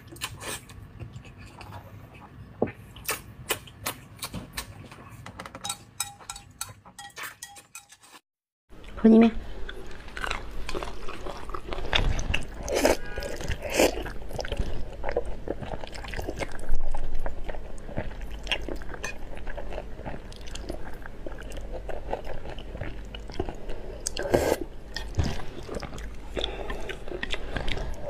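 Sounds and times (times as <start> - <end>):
chewing: 24.9 - 28.0.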